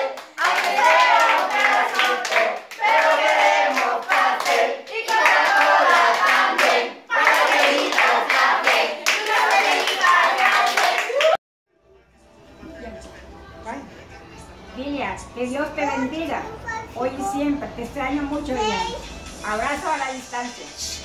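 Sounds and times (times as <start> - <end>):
adults and children singing: 0.0 - 11.1.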